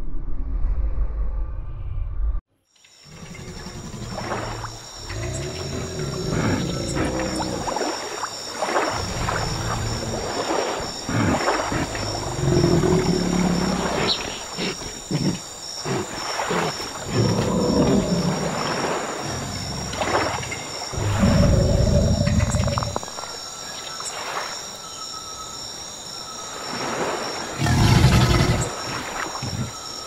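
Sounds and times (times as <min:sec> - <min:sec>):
short water splashes: 0:06.9 - 0:12.3.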